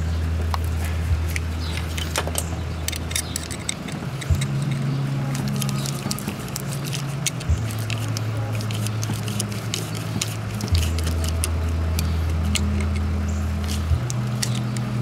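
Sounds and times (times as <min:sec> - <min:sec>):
steady low hum: 0:00.0 - 0:15.0
screwdriver clicks on hose clamp: 0:01.3 - 0:14.9.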